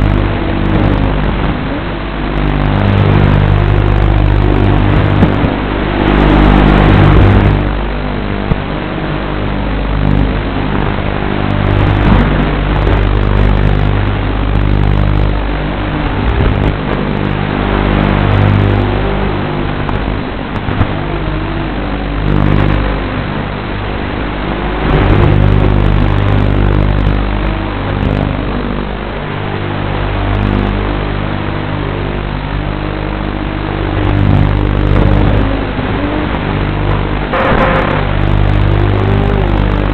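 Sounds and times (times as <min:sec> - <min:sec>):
quadcopter propellers whining: 0:00.0 - 0:39.9
steady low hum: 0:00.0 - 0:39.9.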